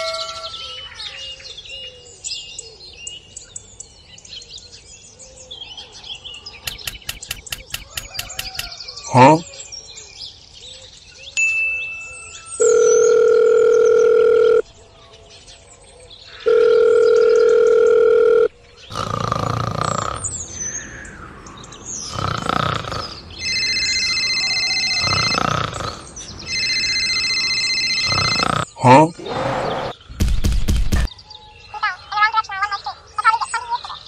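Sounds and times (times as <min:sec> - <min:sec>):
cartoon voice sounds: 0:09.1 - 0:09.4, 0:28.8 - 0:29.2
trilling electronic phone ringtone: 0:12.0 - 0:14.6, 0:16.5 - 0:18.5, 0:23.4 - 0:29.0
telephone ringback tone: 0:12.5 - 0:14.7, 0:16.5 - 0:18.6, 0:23.4 - 0:29.0.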